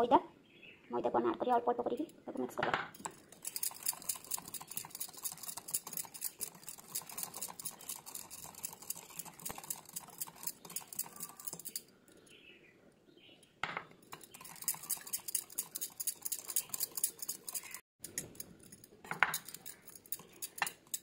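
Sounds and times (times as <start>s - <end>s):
wire whisk clicking in bowl: 3.0s - 11.8s, 14.1s - 18.5s, 19.3s - 21.0s.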